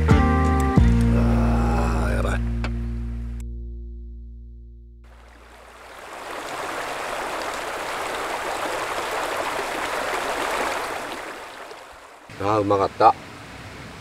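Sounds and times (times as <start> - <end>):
stream running over stones: 5.1 - 14.0.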